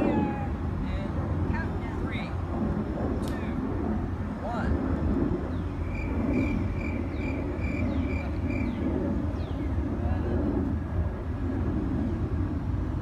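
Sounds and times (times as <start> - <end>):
steady low rumble: 0.0 - 13.0
birds chirping: 5.5 - 9.8.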